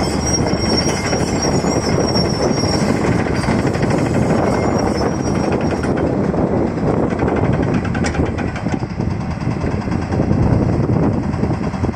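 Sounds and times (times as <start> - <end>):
excavator diesel engine running: 0.0 - 11.9.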